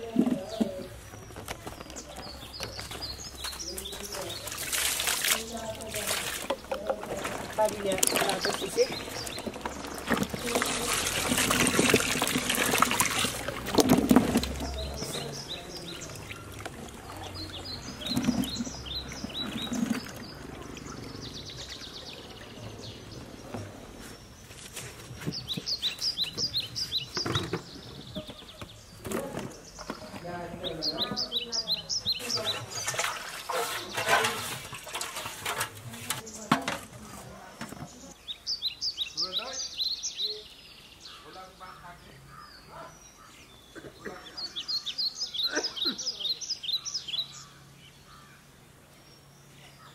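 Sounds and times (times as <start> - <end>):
bird chirping: 0.0 - 35.0, 37.4 - 49.9
hands splashing in a tub of water: 4.0 - 22.2.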